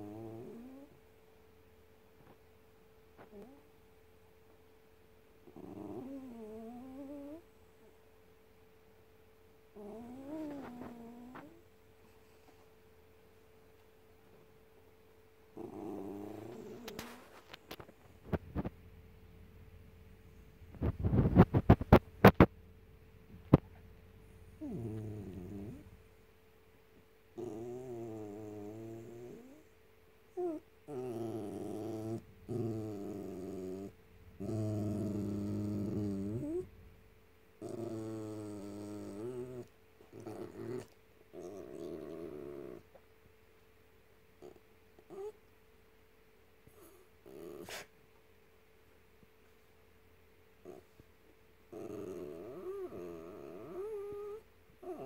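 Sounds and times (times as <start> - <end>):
dog whine-growling: 0.0 - 1.0, 5.4 - 7.4, 9.8 - 11.6, 15.6 - 17.4, 24.6 - 25.8, 27.4 - 29.6, 30.4 - 36.7, 37.6 - 42.9, 44.4 - 45.4, 46.7 - 47.9, 50.6 - 51.0, 51.7 - 55.0.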